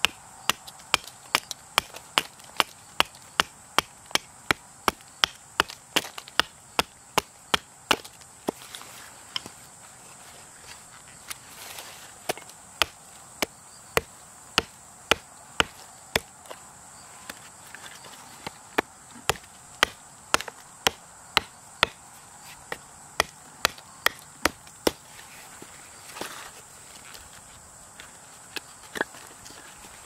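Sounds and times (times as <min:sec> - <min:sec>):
hatchet chopping wood: 0:00.0 - 0:08.6, 0:12.3 - 0:16.4, 0:18.7 - 0:22.0, 0:22.7 - 0:25.0.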